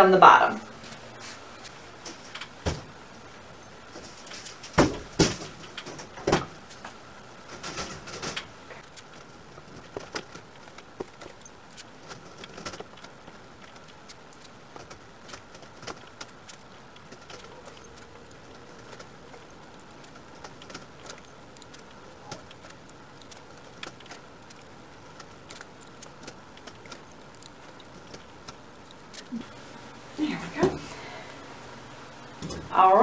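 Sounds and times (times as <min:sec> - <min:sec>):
wire mesh rattling knocks: 0:03.9 - 0:06.6, 0:07.4 - 0:08.6.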